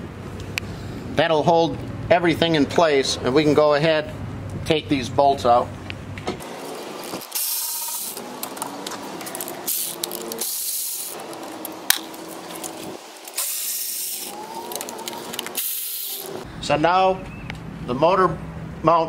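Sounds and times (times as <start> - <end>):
power ratchet whirring: 6.4 - 16.4.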